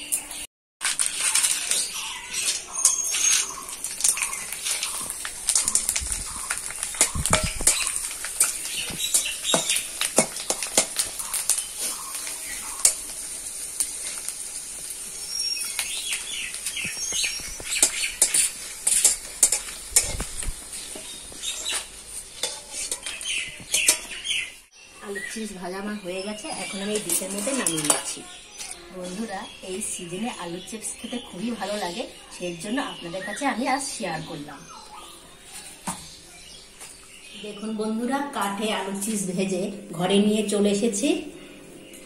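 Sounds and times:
chips sizzling in hot oil: 0:00.8 - 0:25.3
metal spatula scraping pan: 0:01.0 - 0:13.2, 0:17.7 - 0:24.2.

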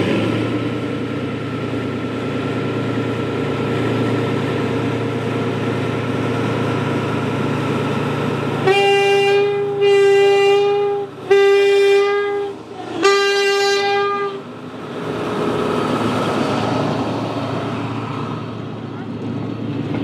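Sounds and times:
locomotive horn blasts: 0:08.6 - 0:14.5
train wagons rolling past: 0:10.6 - 0:20.0.

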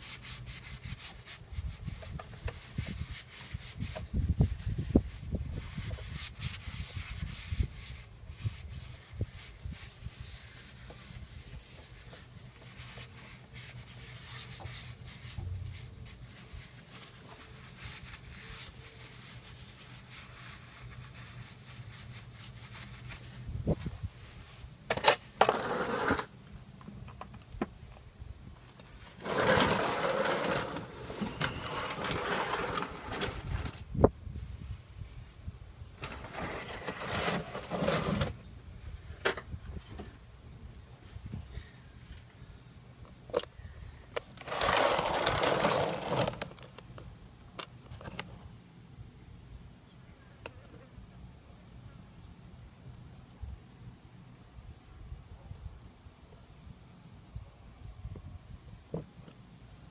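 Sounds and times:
paper towel wiping and rustling: 0:00.0 - 0:24.8
scraping and handling noises: 0:05.5 - 0:27.5, 0:28.6 - 0:33.9, 0:36.0 - 0:38.4, 0:44.1 - 0:48.5.

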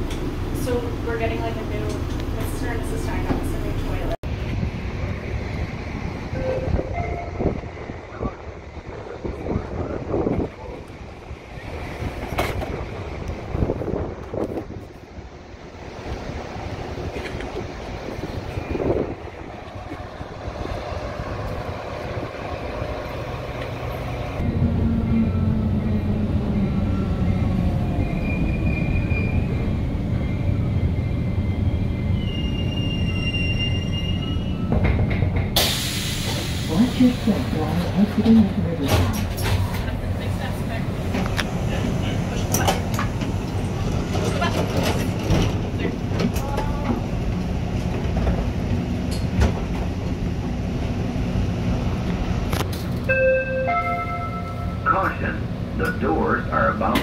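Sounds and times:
train low rumble and hum: 0:00.0 - 0:57.0
train rolling by: 0:00.0 - 0:57.0
brake and wheel squeals: 0:28.0 - 0:35.0.

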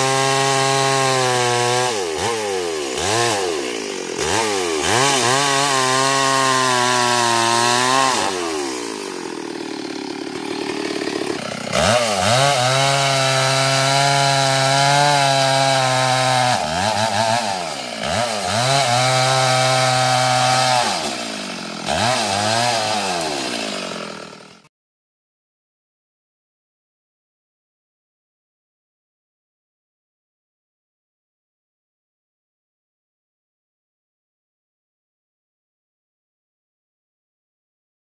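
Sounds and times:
chainsaw cutting log: 0:00.0 - 0:24.7.

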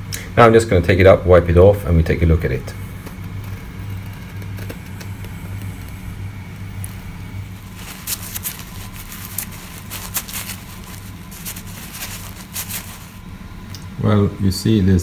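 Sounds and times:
low machine hum: 0:00.0 - 0:15.0
paper towels crinkling: 0:03.2 - 0:13.3.

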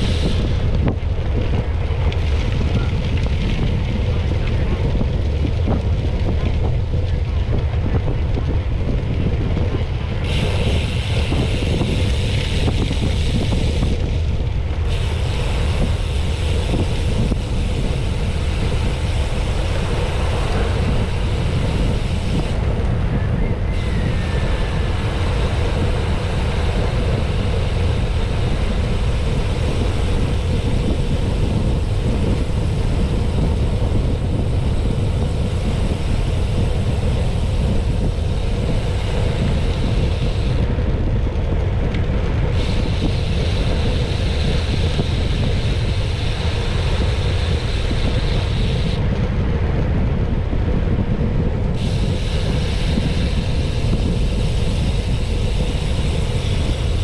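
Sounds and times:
low rumble: 0:00.0 - 0:57.0
wind noise on microphone: 0:00.0 - 0:57.0.

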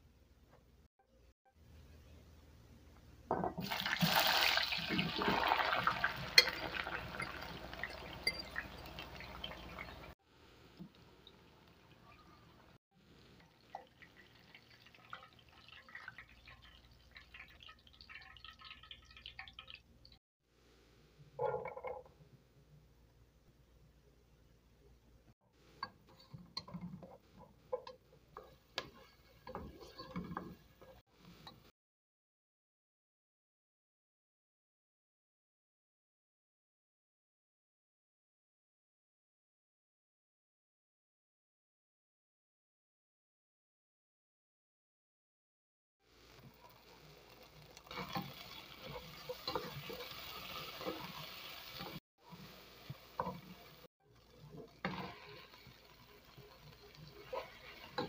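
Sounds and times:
vegetables sizzling in oil: 0:03.6 - 0:10.0, 0:46.1 - 0:58.0
wooden spatula stirring: 0:25.6 - 0:31.5, 0:46.3 - 0:58.0
wooden spoon scraping pot: 0:25.8 - 0:31.0, 0:51.8 - 0:58.0.

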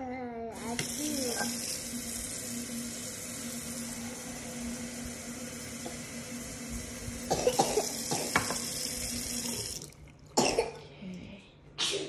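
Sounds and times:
tap water running: 0:00.5 - 0:10.8.

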